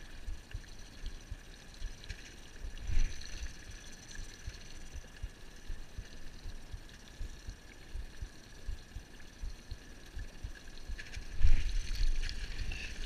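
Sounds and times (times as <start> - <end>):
wind on microphone: 2.6 - 3.8, 10.4 - 13.0.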